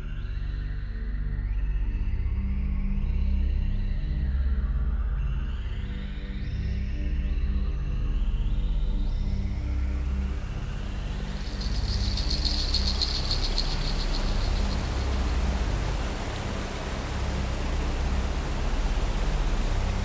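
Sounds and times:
ambient droning soundtrack: 7.7 - 20.0
fountain spray hissing: 10.2 - 20.0
high rapid flutter: 10.3 - 20.0.

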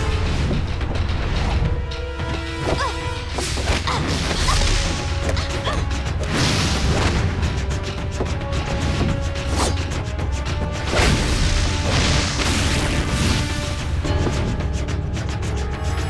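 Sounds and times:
dramatic action score: 0.0 - 16.0.

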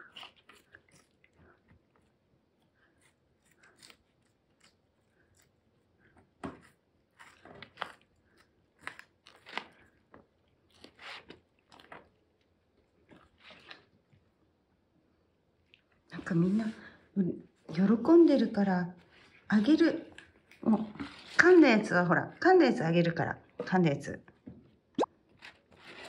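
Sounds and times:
cats chewing crunchy leaves: 0.0 - 14.5, 25.3 - 26.0.

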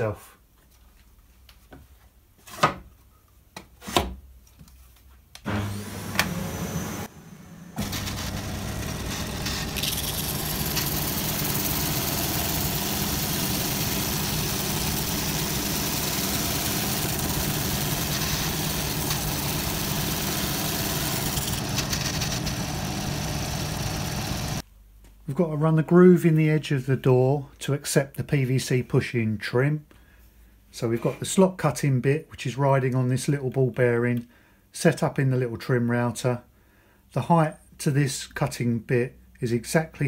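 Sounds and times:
belt sander running: 5.5 - 24.6.

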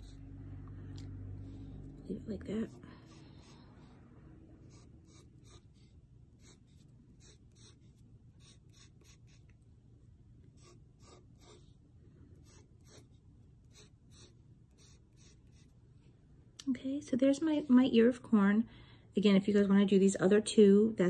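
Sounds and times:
pencil scratching on paper: 0.0 - 9.7, 10.4 - 16.0.

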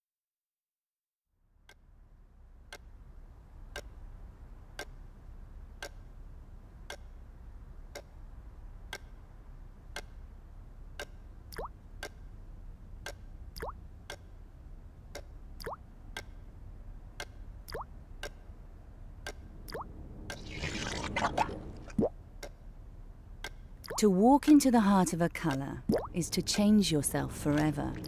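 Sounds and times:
clock ticking: 1.6 - 20.4, 22.0 - 28.0
low hum: 9.4 - 28.0.

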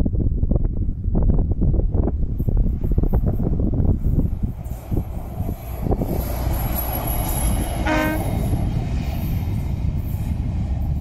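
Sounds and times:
rail car rumbling past: 1.4 - 11.0
short horn blast: 7.8 - 8.3.

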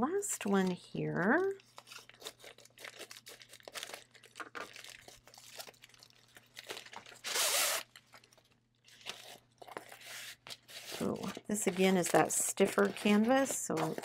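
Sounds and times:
plastic crinkling: 0.4 - 14.0
scissors snipping plastic mailer: 10.9 - 14.0.

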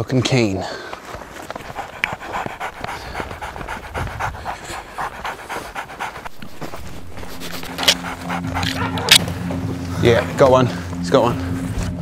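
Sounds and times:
dog panting hard: 1.3 - 9.4
low steady drone: 6.2 - 12.0.

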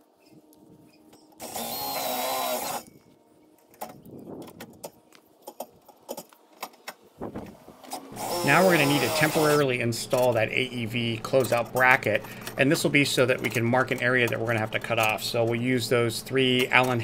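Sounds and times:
power tool whining: 0.9 - 3.2, 7.5 - 9.8
metallic tool clicks and clanks: 13.2 - 15.6.

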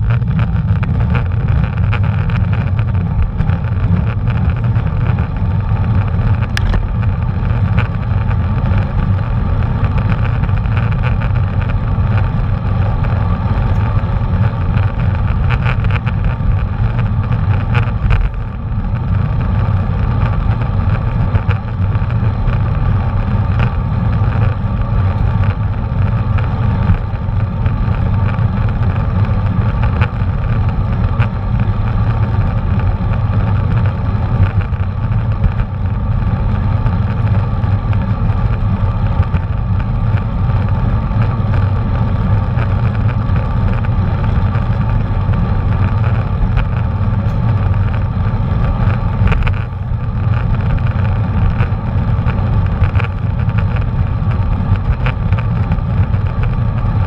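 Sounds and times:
bicycle road noise: 0.0 - 57.0
wind rumble on microphone: 0.0 - 57.0.

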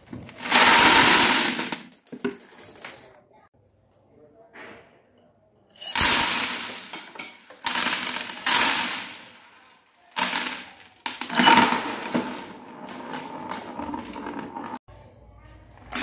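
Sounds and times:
beads rattling and rolling: 0.2 - 3.1, 5.8 - 14.8
plastic beads clattering onto tray: 0.2 - 3.1, 5.8 - 14.6.

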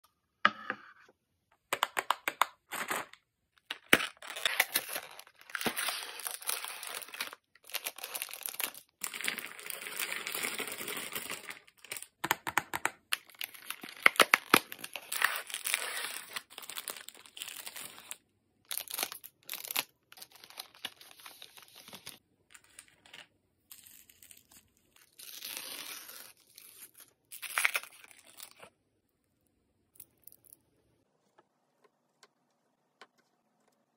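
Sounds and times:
wrapper crinkling: 3.8 - 12.1, 13.2 - 28.6.

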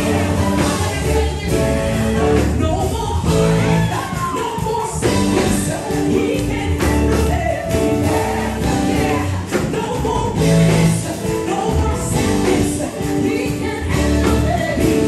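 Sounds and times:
backing singers: 0.0 - 15.0
band with drums: 0.0 - 15.0
woman singing into microphone: 11.1 - 15.0.

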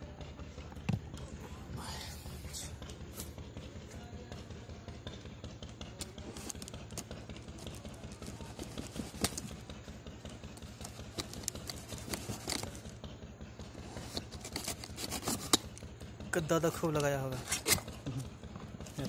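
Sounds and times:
knife slitting packing tape: 11.1 - 12.8, 13.9 - 15.8, 17.4 - 17.9.

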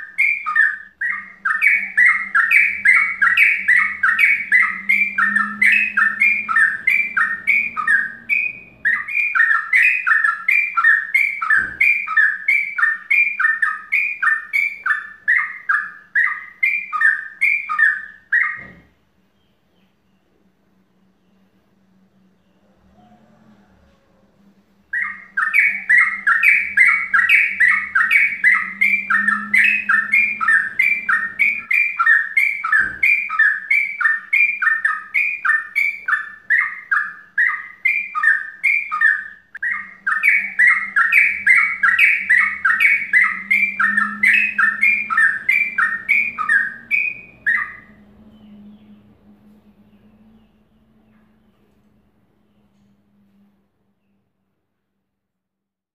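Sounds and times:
bird chattering song: 0.0 - 21.5, 24.8 - 51.8
low hum: 39.4 - 54.9.

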